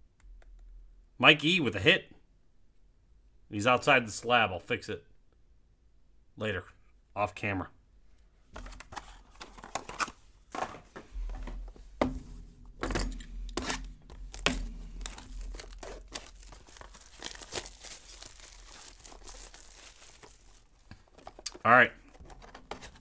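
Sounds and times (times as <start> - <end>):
sharp knocks: 11.2 - 14.8
packaging tearing and crinkling: 13.5 - 23.0.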